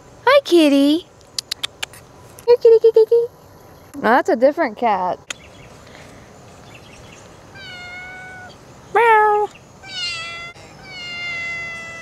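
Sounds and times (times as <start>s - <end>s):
cat meowing: 7.5s - 8.6s, 9.8s - 12.0s.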